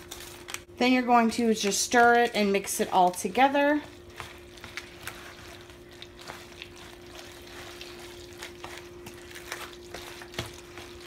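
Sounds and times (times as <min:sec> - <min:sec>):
wet squishing of pasta salad: 0:03.6 - 0:11.0.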